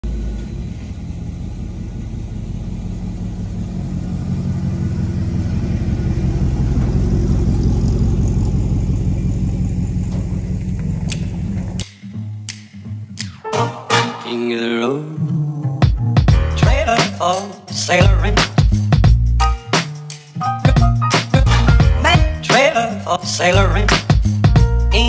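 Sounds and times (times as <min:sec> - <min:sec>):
truck engine driving past: 0:00.0 - 0:11.8.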